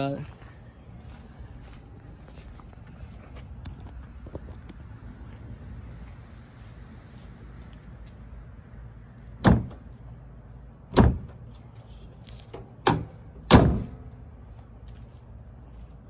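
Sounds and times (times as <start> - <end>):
hood slamming shut: 9.4 - 9.9, 10.9 - 11.4, 12.5 - 14.1.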